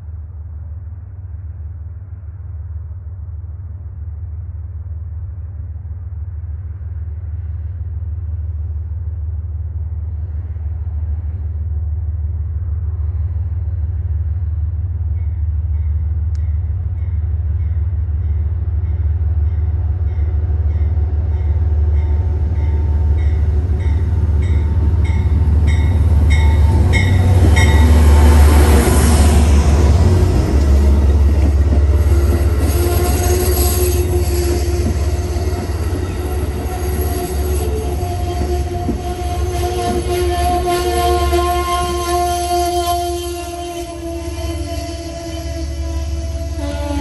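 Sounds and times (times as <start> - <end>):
train approaching rumble: 0.0 - 47.0
locomotive bell ringing: 21.4 - 28.0.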